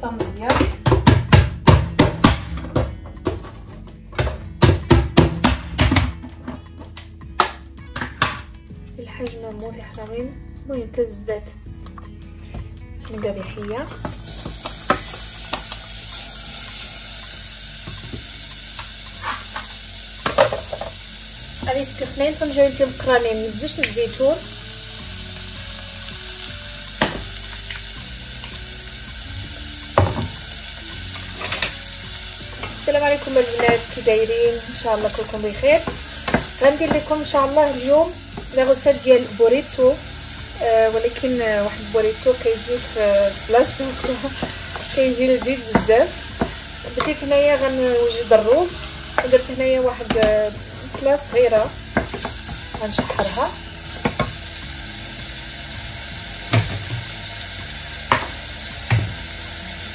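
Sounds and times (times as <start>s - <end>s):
onion sizzling in oil: 13.1s - 59.9s.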